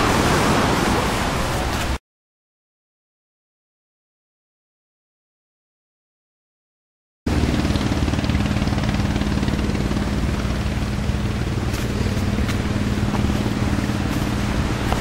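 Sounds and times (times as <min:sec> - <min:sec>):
motor humming steadily: 0:07.3 - 0:15.0.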